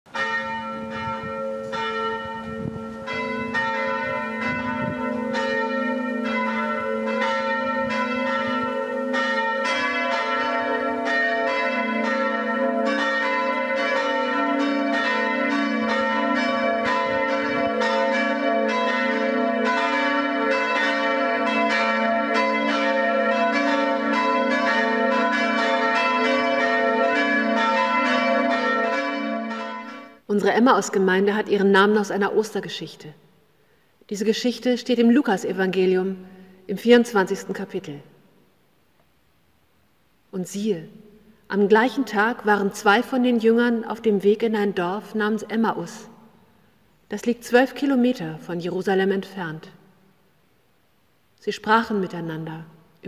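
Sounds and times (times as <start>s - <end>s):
church bells ringing: 0.1s - 30.3s.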